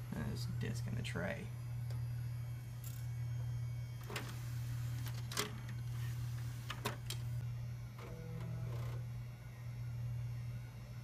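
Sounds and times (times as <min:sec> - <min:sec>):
computer low hum: 0:00.0 - 0:11.0
floppy drive seek noises: 0:04.0 - 0:09.2.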